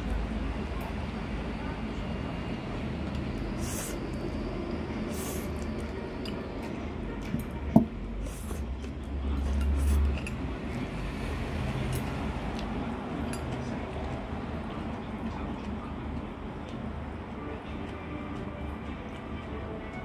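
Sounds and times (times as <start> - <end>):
person slurping noodles: 3.5 - 4.1, 5.0 - 5.7, 8.2 - 8.7, 9.6 - 10.2.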